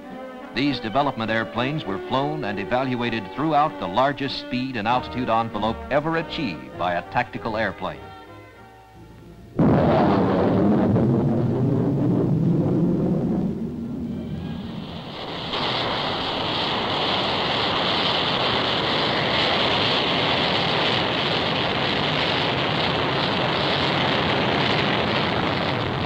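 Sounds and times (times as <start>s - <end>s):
jet engine roar: 0.0s - 7.9s, 9.6s - 26.0s
low rumble: 9.2s - 26.0s.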